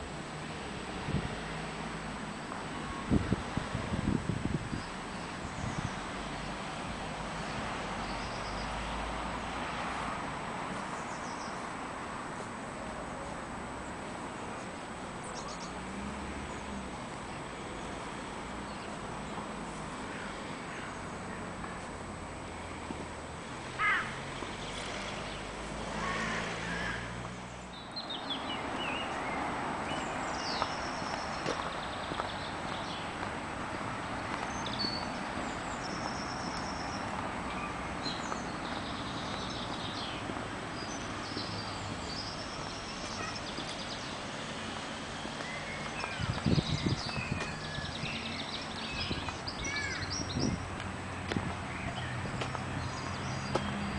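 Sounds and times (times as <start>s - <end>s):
birds chirping: 23.7s - 33.3s, 34.2s - 53.9s.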